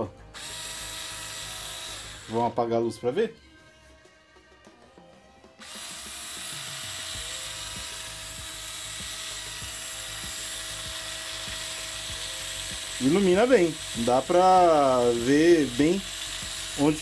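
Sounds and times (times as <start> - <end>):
cordless screwdriver motor whirring: 0.3 - 2.6, 5.6 - 17.0.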